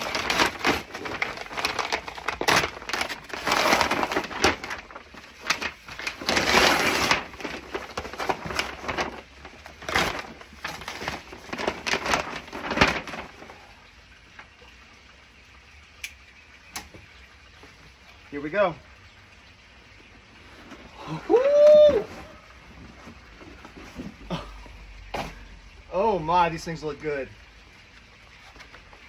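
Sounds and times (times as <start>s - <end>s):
knife slitting paper: 0.0s - 9.2s
paper tearing and crackling: 0.0s - 13.5s.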